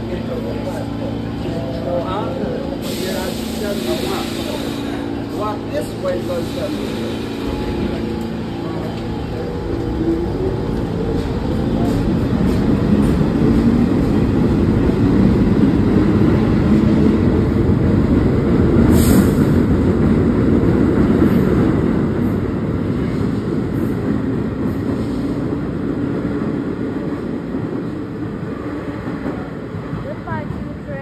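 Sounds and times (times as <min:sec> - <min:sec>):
subway train rumbling: 0:00.0 - 0:31.0.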